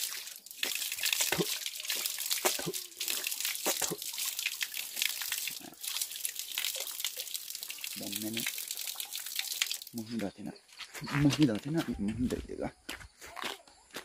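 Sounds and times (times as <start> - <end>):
water splashing on face: 0.0 - 10.0
water running from a tap: 0.0 - 10.1.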